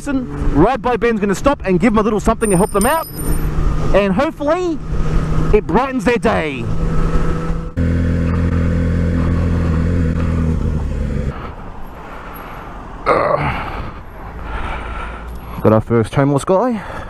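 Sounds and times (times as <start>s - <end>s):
motorcycle engine running: 6.7s - 11.3s.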